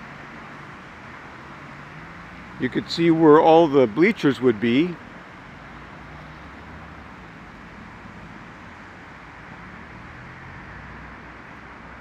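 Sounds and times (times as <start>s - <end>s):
distant road traffic hum: 0.0s - 12.0s.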